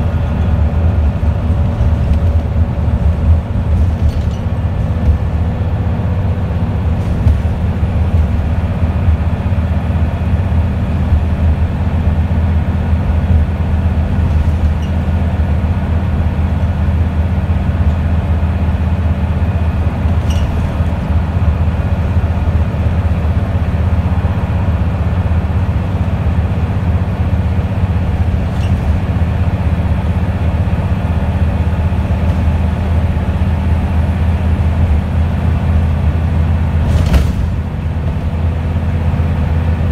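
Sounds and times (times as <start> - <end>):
bus engine drone: 0.0 - 39.9
road rumble: 0.0 - 39.9
faint rattles: 0.2 - 5.4.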